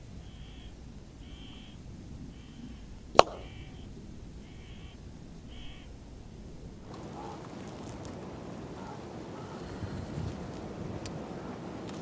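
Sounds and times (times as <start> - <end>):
crows calling: 0.0 - 10.6
air rifle shot: 3.2 - 3.8.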